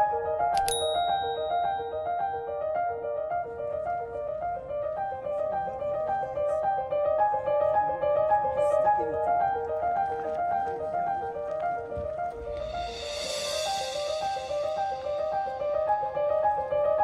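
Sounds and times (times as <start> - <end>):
background piano music: 0.0 - 17.0.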